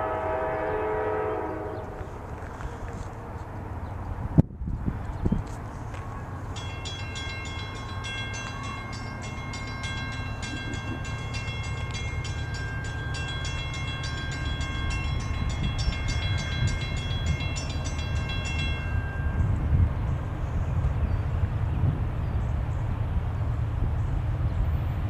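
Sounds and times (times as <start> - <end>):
freight train rumble: 0.0 - 25.0
railroad crossing bell ringing: 5.9 - 20.4.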